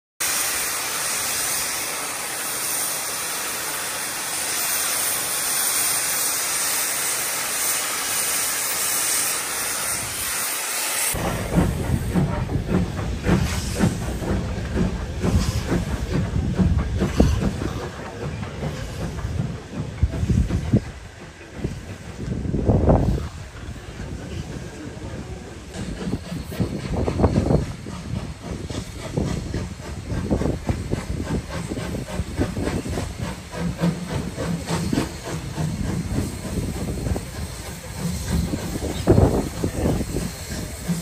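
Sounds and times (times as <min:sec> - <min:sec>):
steam locomotive hissing: 0:00.2 - 0:41.0.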